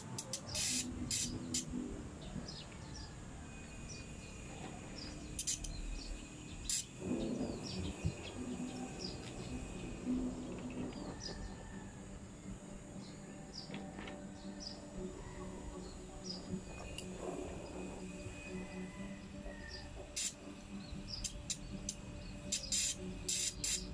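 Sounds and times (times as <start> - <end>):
hiss bursts: 0.0 - 1.8, 5.2 - 11.5, 20.0 - 23.9
small birds chirping: 0.0 - 23.9.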